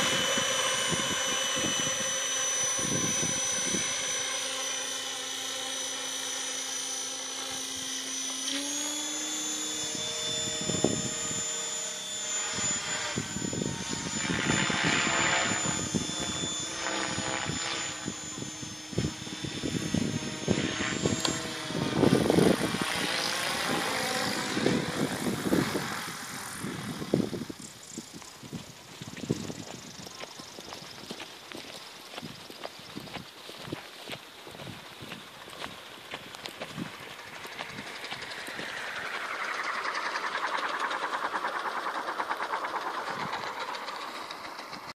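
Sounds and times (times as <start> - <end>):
wind buffeting microphone: 0.0 - 4.0, 9.8 - 11.6, 17.2 - 41.0
rotor blades whooshing: 0.0 - 28.6, 35.7 - 44.9
helicopter knocking on landing: 36.6 - 44.9.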